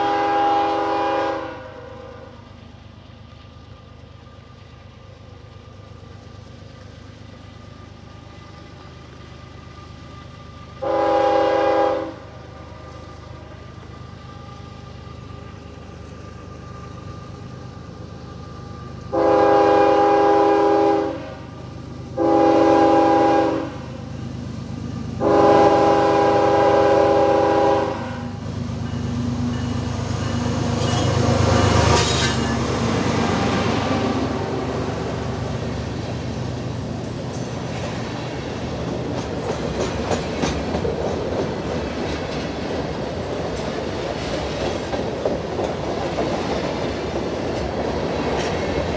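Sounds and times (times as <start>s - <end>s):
locomotive air horn blasts: 0.0s - 2.3s, 10.8s - 12.4s, 19.1s - 21.5s, 22.2s - 24.0s, 25.2s - 28.4s, 33.5s - 35.4s
diesel locomotive rumbling past: 0.0s - 48.9s
train wheels clicking over rail joints: 28.3s - 33.9s, 34.5s - 48.9s.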